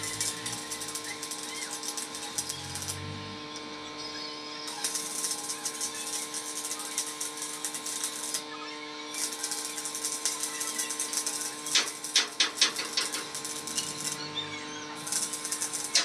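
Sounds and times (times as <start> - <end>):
steady hum: 0.0 - 3.7
welding arc crackling: 0.0 - 16.0
spatter pops: 9.2 - 14.2.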